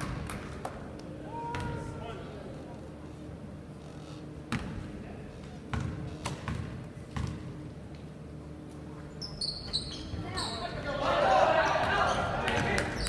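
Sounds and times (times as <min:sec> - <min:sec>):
sneakers squeaking on court: 0:05.7 - 0:07.5, 0:09.1 - 0:10.8.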